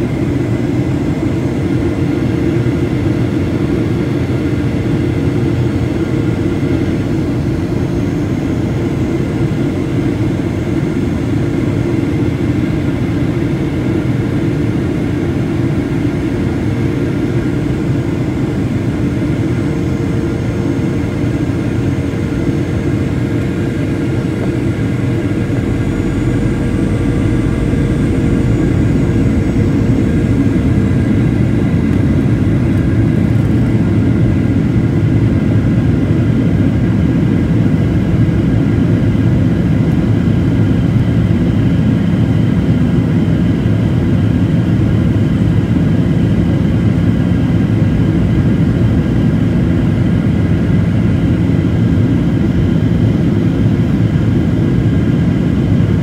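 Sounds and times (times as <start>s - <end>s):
jet engines droning: 0.0s - 56.0s
low hum: 17.7s - 42.7s
faint whining tones: 22.6s - 34.4s.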